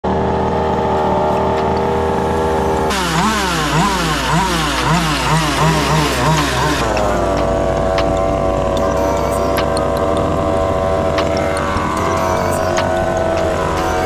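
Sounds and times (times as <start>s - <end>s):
two-stroke engine idling and revving: 0.0s - 14.0s.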